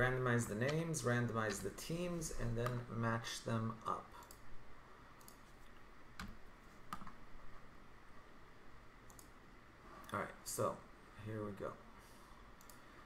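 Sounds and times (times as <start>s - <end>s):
low room hum: 0.0s - 13.0s
computer mouse clicks: 4.2s - 4.4s, 5.2s - 7.2s, 9.1s - 9.4s, 12.6s - 12.9s.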